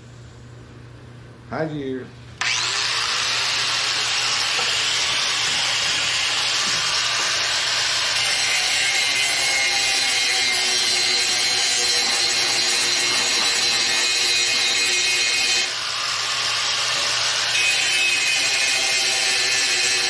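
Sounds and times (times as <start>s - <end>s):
angle grinder grinding metal: 2.4s - 20.0s.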